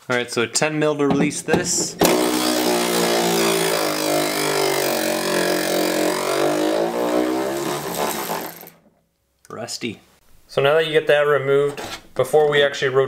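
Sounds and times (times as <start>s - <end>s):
electric ratchet motor whine: 2.0s - 8.8s.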